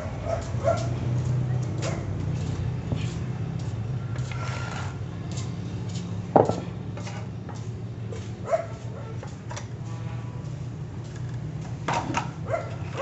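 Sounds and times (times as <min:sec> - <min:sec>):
metal parts clinking on concrete: 0:06.4 - 0:07.3.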